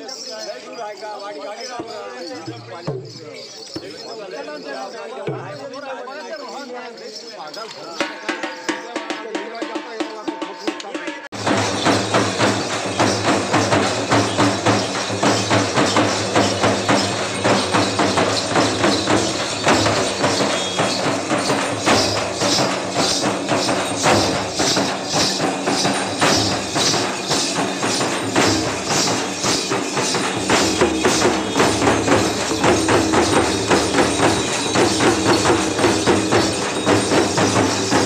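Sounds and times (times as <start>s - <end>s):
jingling: 0.0s - 38.0s
large drums beaten with sticks: 11.3s - 38.0s.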